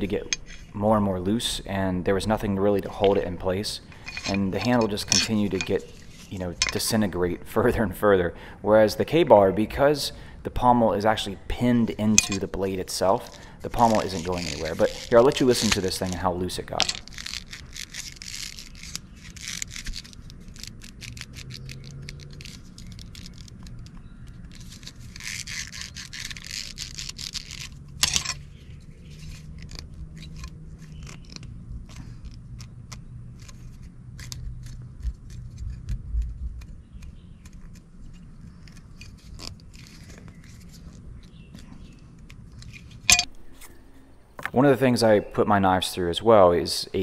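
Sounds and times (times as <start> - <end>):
leather washers scraping and clicking: 0.0 - 0.8, 2.8 - 7.0, 12.0 - 44.5.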